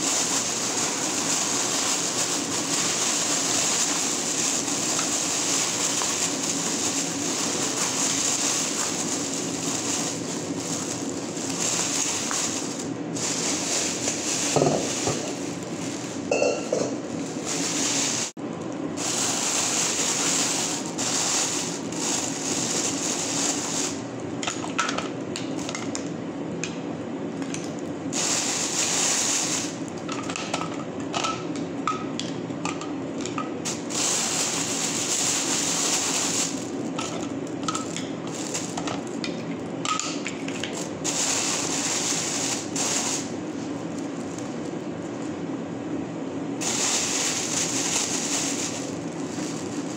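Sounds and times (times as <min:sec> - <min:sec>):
plastic bags rustling and crinkling: 0:00.0 - 0:18.4, 0:19.0 - 0:24.0, 0:28.1 - 0:29.8, 0:33.6 - 0:39.7, 0:40.4 - 0:45.1, 0:46.6 - 0:49.9
steady background hum: 0:00.0 - 0:49.9.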